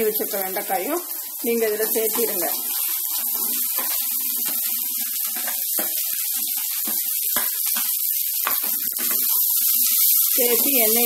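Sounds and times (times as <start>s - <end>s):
vegetables sizzling in oil: 0.0s - 11.0s.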